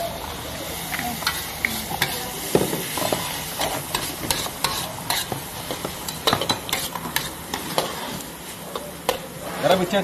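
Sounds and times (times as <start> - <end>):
hot oil sizzling: 0.0 - 10.0
metal spatula scraping wok: 1.2 - 10.0.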